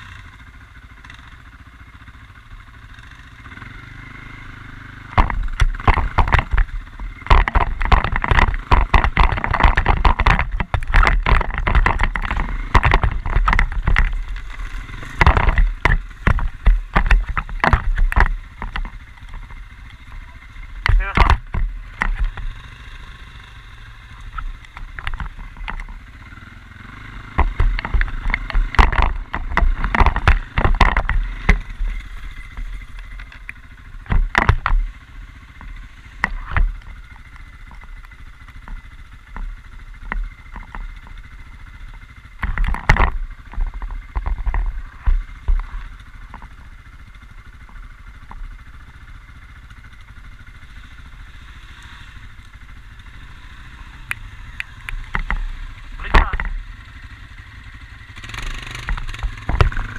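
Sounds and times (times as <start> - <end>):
quad bike running: 0.0 - 59.9
knocks and clatter: 5.1 - 22.6, 24.2 - 26.3, 27.0 - 50.2, 54.0 - 57.0, 58.1 - 59.9.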